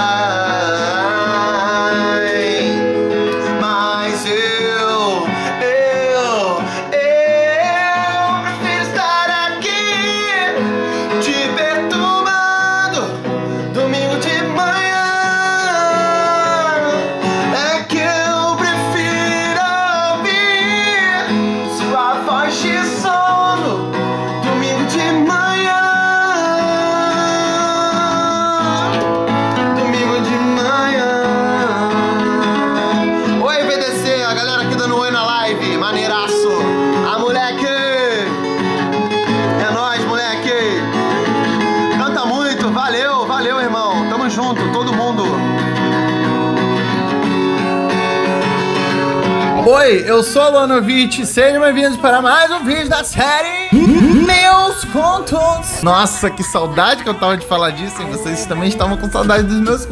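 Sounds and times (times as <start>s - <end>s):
person singing a melody: 0.0s - 34.3s, 53.4s - 55.9s
guitar accompaniment: 0.0s - 59.9s.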